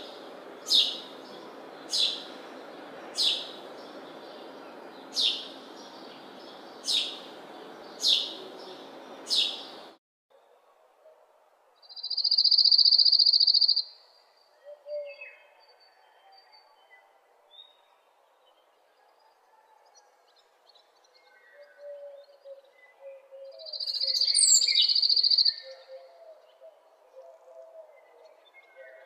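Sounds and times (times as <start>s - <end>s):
bird chirping: 0.0s - 10.0s, 11.8s - 18.7s, 19.5s - 29.0s.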